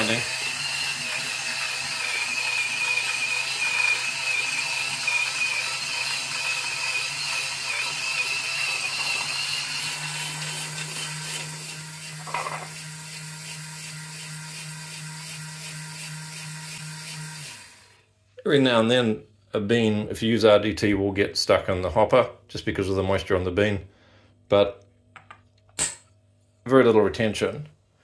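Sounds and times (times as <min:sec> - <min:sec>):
coffee grinder grinding beans: 0:00.0 - 0:18.1.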